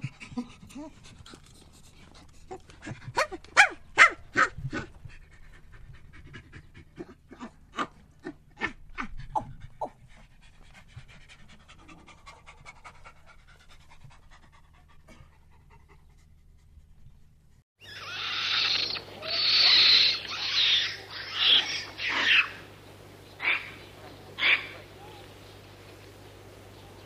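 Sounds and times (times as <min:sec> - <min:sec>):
monkey panting grunts: 0:00.0 - 0:03.4, 0:04.6 - 0:17.3.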